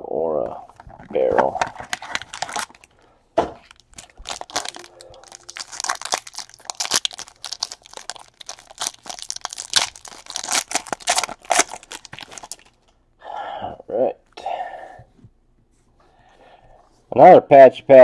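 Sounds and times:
foil wrapper tearing and crinkling: 1.6 - 2.9, 3.6 - 12.8.

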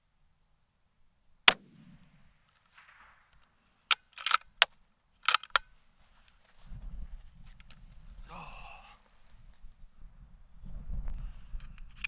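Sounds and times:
rifle shot: 1.5 - 3.6
rifle bolt clicking: 3.9 - 5.6.

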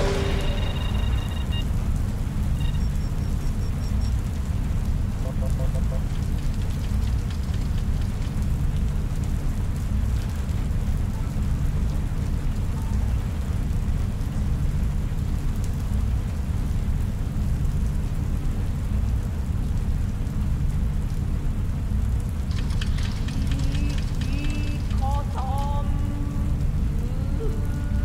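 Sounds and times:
deep low rumble: 0.0 - 3.1.

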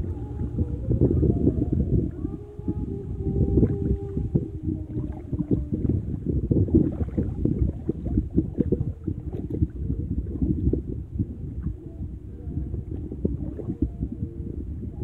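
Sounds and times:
faint steady hum: 0.0 - 15.0
water sloshing against microphone: 0.0 - 15.0.

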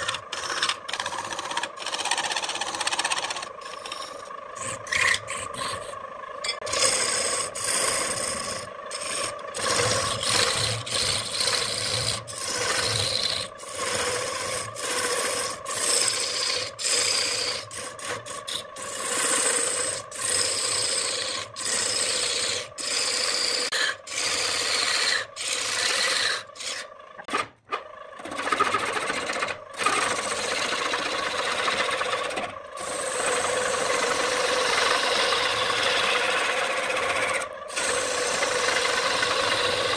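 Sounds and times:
lathe motor hum: 0.0 - 39.9
turning tool cutting wood: 0.0 - 39.9.

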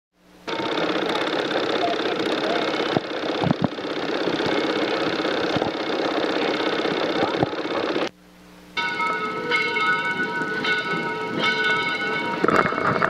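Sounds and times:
steam locomotive running: 0.5 - 8.1, 8.8 - 13.0.

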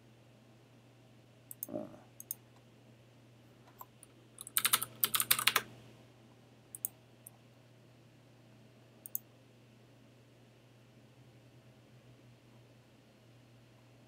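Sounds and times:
mouse clicks: 1.5 - 2.4, 6.7 - 7.0, 9.0 - 9.3
keyboard typing: 3.8 - 5.7.

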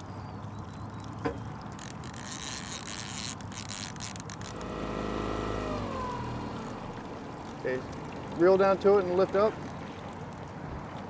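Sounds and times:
fishing reel clicking and rasping: 1.7 - 6.8
fishing reel buzzing: 1.7 - 7.8
low hum: 4.2 - 8.4.

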